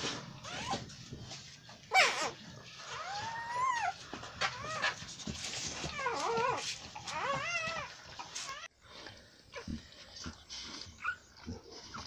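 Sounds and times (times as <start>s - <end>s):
puppy crying: 1.9s - 5.0s, 5.8s - 8.7s.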